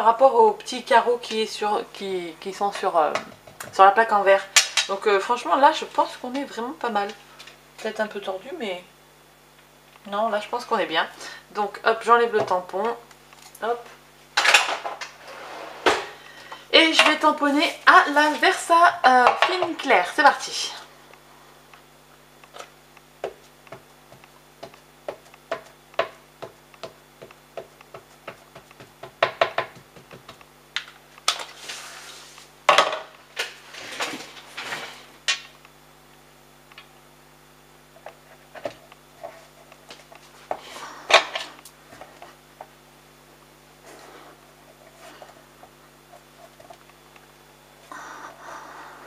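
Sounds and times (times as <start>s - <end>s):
ink pad tapping on rubber stamp: 23.2s - 30.4s.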